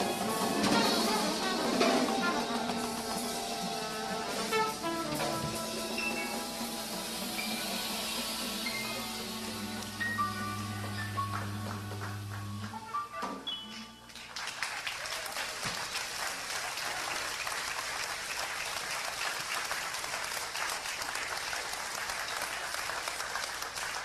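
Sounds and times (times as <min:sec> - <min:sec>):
audience applauding: 0:00.0 - 0:13.1, 0:13.7 - 0:24.0
band's last note: 0:00.0 - 0:13.4.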